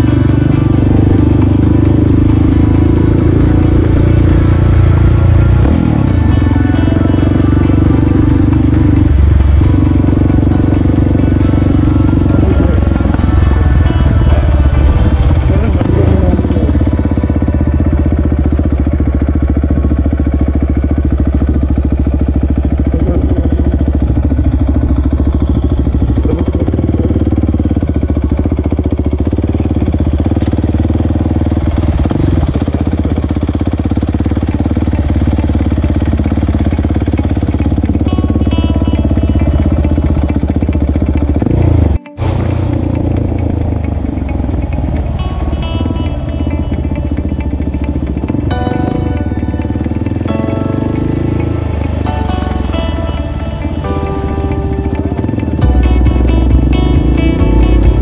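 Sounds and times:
music playing: 0.0s - 19.7s, 34.6s - 58.0s
motorcycle engine running: 0.0s - 58.0s.

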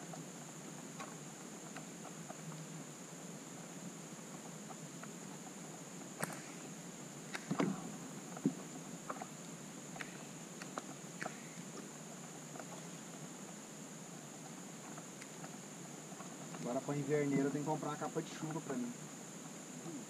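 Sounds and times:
high-pitched insect buzz: 0.0s - 20.0s
knocks on kayak: 7.4s - 7.8s.

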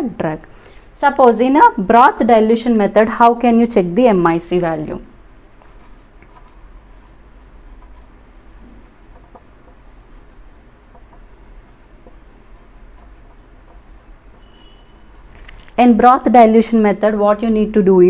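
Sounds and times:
marker scratching on whiteboard: 5.6s - 16.0s.

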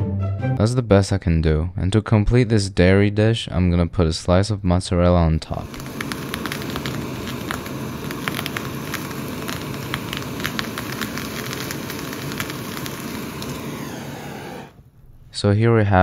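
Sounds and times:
crackling sizzling with sharp pops: 5.6s - 14.9s.

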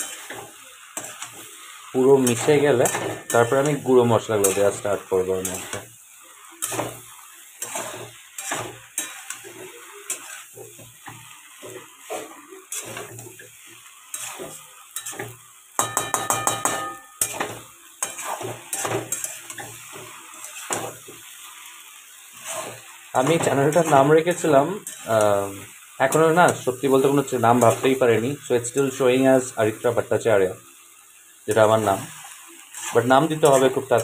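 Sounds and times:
spatula scraping metal pan: 0.0s - 1.6s, 2.2s - 5.9s, 6.6s - 21.2s, 22.3s - 25.2s, 31.5s - 34.0s
light sizzle: 0.0s - 34.0s.

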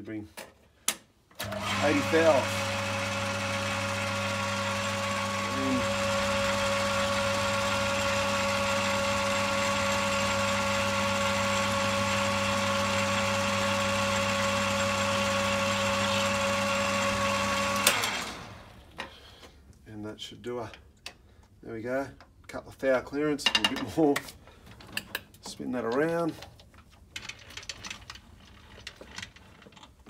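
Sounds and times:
metal lathe humming: 1.4s - 18.6s.

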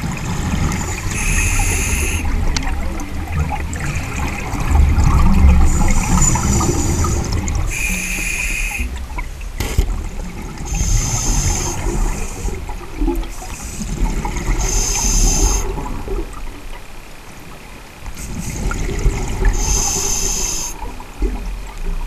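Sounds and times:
exhaled bubbles underwater: 0.0s - 16.8s, 18.2s - 22.0s
scuba regulator hissing inhalations: 1.0s - 2.4s, 5.6s - 8.9s, 10.7s - 12.7s, 13.3s - 15.7s, 19.5s - 20.8s.

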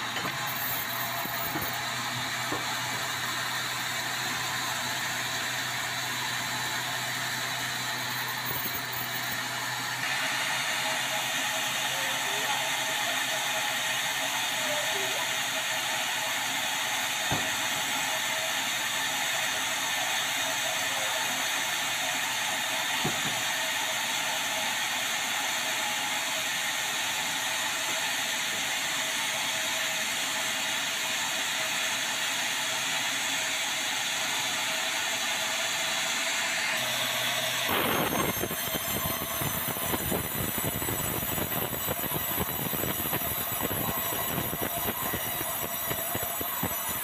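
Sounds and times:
band saw blade whirring: 0.0s - 12.6s, 36.0s - 47.0s.

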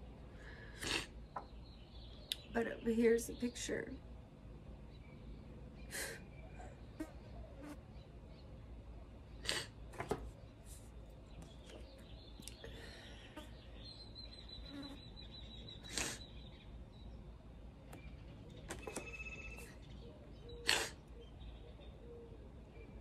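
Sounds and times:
low steady hum: 0.0s - 23.0s
faint high steady tone: 18.8s - 19.9s.

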